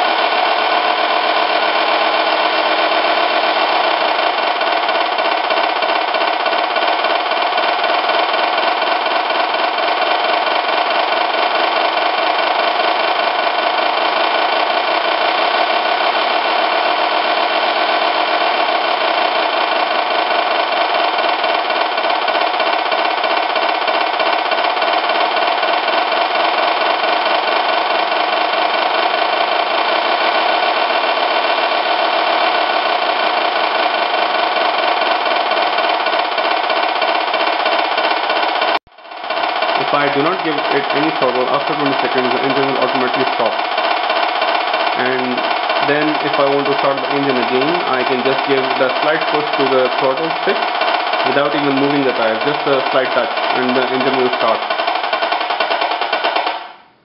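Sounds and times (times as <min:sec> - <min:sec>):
simulated diesel engine from speaker: 0:39.7 - 0:43.6, 0:45.0 - 0:50.6, 0:51.2 - 0:54.6.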